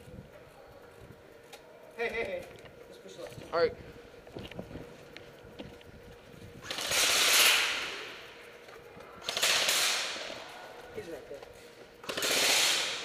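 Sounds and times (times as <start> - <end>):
airsoft rifles firing full-auto bursts: 6.6 - 8.3, 9.2 - 10.4, 12.0 - 13.0.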